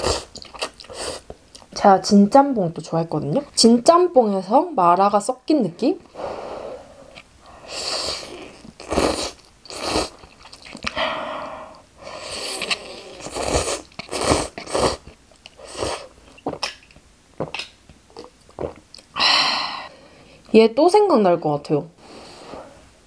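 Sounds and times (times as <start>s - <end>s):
chewing: 8.5s - 11.0s
noodles being slurped: 12.2s - 16.8s.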